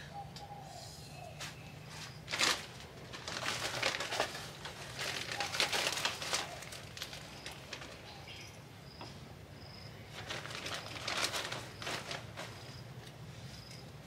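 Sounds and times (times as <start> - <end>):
dry rustling and crackling: 1.4 - 8.5, 10.1 - 13.8.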